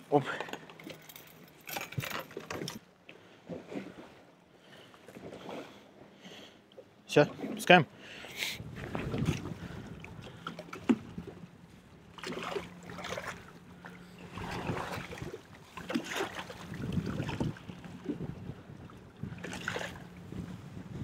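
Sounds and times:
water lapping against boat hull: 0.0 - 21.0
wind on microphone: 8.6 - 10.1, 14.3 - 15.4, 16.5 - 21.0.

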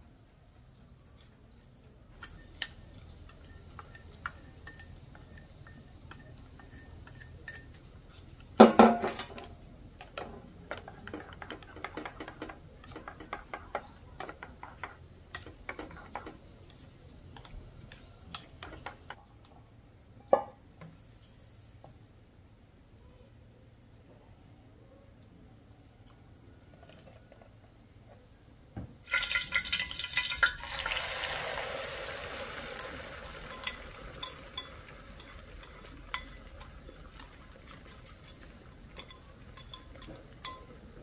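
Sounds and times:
insects chirring: 0.0 - 41.0
dishes and utensils clinking: 2.2 - 9.5, 32.3 - 41.0.

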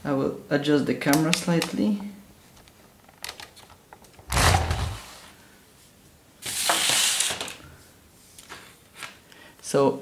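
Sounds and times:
camera rubbing hiss: 6.4 - 7.6.

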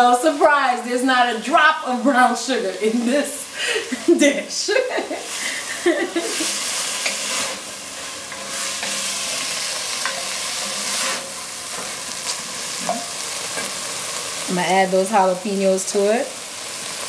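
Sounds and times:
vegetables sizzling in a pot: 0.0 - 17.0
wooden spoon scraping a pot: 6.2 - 14.2.

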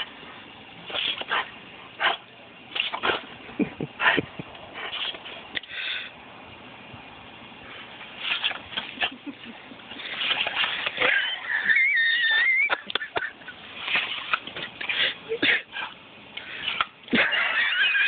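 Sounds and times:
dog whining: 11.0 - 12.8.

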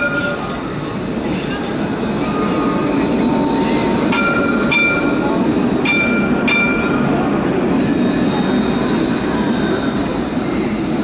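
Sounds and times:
tram warning bell dings: 0.0 - 0.8, 2.2 - 7.3
tram rumbling: 0.0 - 11.0.

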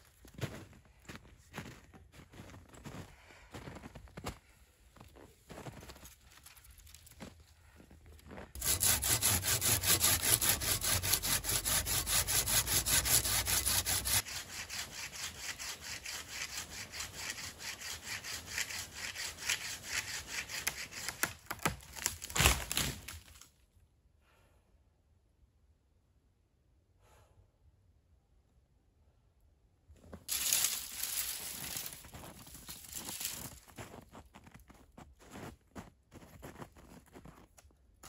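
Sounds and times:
hand saw cutting a branch: 8.6 - 23.1, 30.3 - 33.6
branch cracking: 21.2 - 23.5, 30.3 - 33.5.

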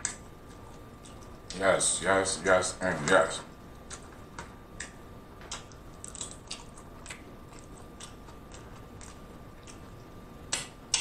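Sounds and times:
taco shell crunching: 5.5 - 10.1.

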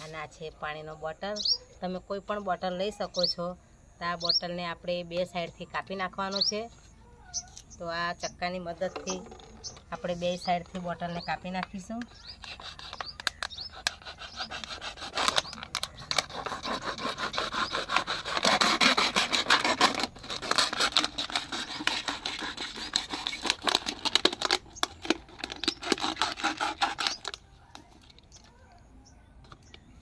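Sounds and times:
knife sawing through plastic bottle: 12.2 - 27.4.

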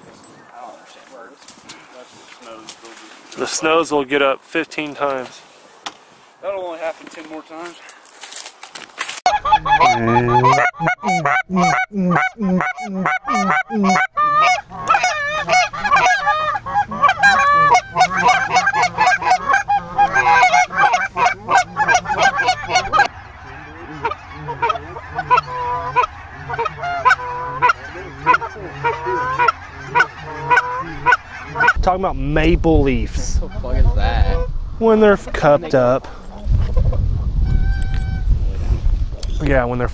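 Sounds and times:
geese yelping calls: 9.2 - 31.8.

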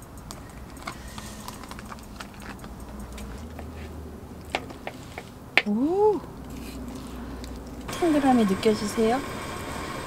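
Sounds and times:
utensils clicking and tapping: 0.0 - 7.9
plastic bag crinkling: 0.4 - 5.4, 6.3 - 7.9.

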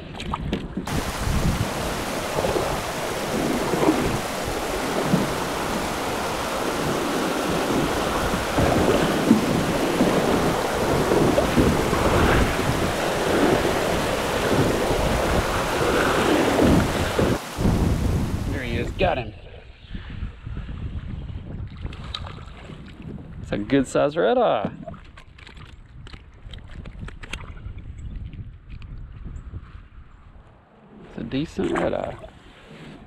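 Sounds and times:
heavy rain on river water: 0.9 - 19.0
thunder rumbling: 0.9 - 19.1.

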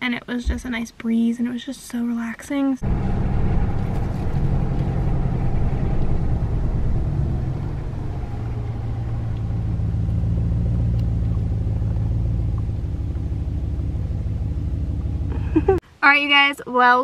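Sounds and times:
road noise: 2.8 - 15.8
truck engine hum: 2.8 - 15.8.

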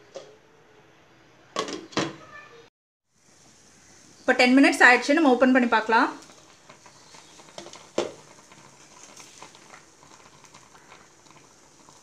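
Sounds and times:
water simmering in pan: 3.0 - 12.0.

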